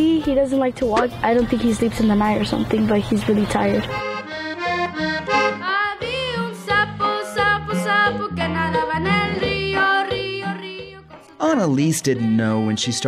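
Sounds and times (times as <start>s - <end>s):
accordion music: 0.0s - 13.0s
person singing: 4.3s - 13.0s.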